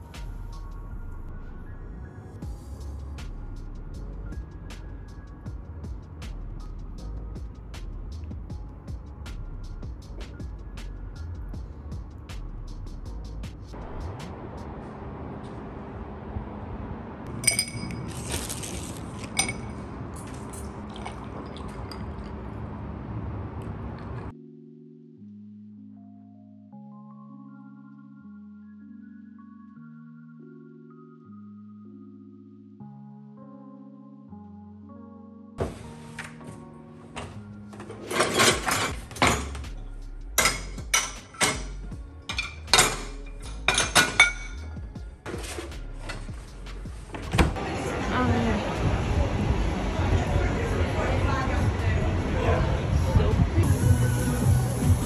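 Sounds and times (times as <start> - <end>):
drinking glass clinking: 17.3 - 18.2, 19.3 - 22.4, 42.3 - 44.7
juice pouring into glass: 20.8 - 22.4
dishes clattering in dishwasher racks: 37.8 - 39.6, 40.4 - 44.6.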